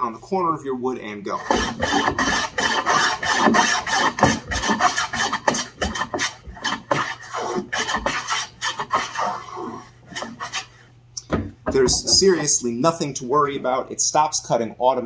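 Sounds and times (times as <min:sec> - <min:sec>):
hand plane shaving wood: 0:01.4 - 0:10.8.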